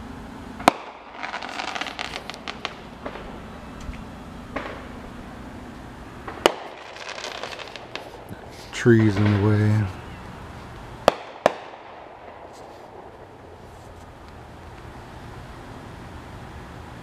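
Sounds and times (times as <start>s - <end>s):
fireworks crackling: 0.0s - 16.3s
soft fireworks pops: 0.6s - 5.0s, 6.2s - 10.0s, 10.6s - 14.8s
fireworks bangs: 0.6s - 13.8s.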